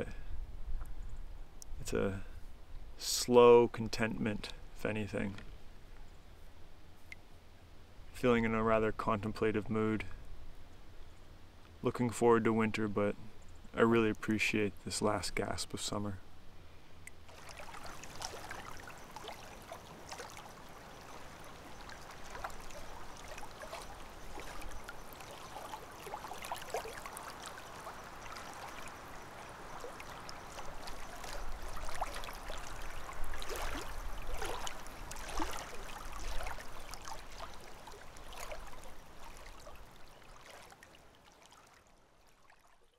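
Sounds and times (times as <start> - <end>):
paddle splashing and dripping: 17.0 - 42.9
steady wash of water: 17.3 - 42.9.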